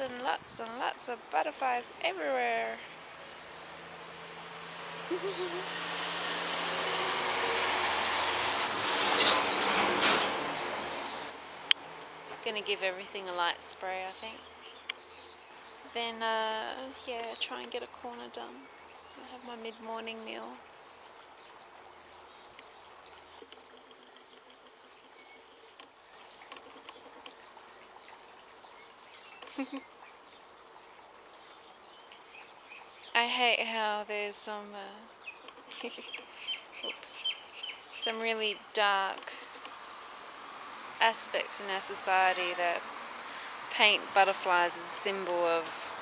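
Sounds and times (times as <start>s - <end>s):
vehicle passing by: 2.8s - 13.0s, 38.4s - 46.0s
small ticks: 20.6s - 33.1s, 39.2s - 39.9s.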